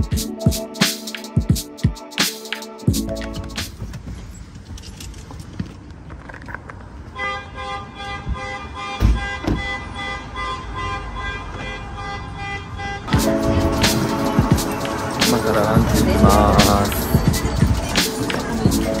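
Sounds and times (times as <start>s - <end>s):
street traffic: 3.2s - 19.0s
long steady car horn: 7.2s - 13.2s.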